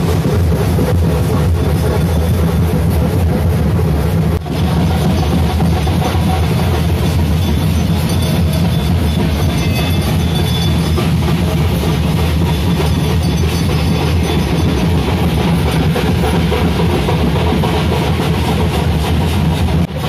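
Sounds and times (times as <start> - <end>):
ritual music with dense drumming: 0.0 - 20.0.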